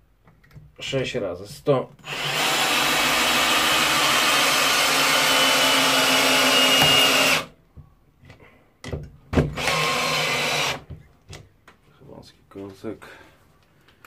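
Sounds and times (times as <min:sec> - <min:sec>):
cordless drill under heavy load: 0:02.0 - 0:07.5, 0:09.5 - 0:10.9.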